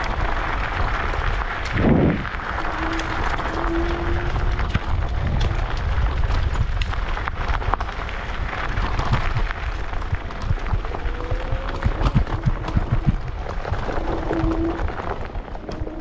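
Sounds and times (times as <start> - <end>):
wind buffeting microphone: 0.0 - 16.0
knocks and rattles: 8.8 - 13.4.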